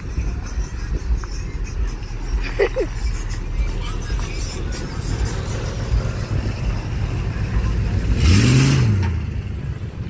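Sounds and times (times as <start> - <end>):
traffic engines running: 0.0 - 10.0
engine revving: 4.0 - 9.9.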